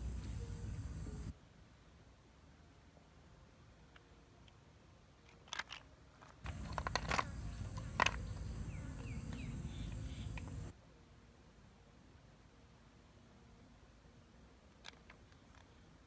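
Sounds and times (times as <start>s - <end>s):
snail shells clicking together: 6.4s - 8.6s.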